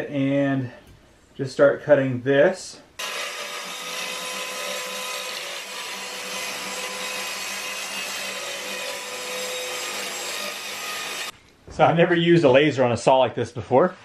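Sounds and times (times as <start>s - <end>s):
circular saw cutting wood: 3.0s - 11.4s.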